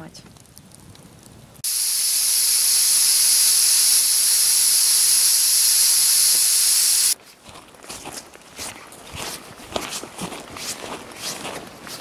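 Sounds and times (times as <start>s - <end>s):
pressure cooker steam hissing: 1.6s - 7.2s.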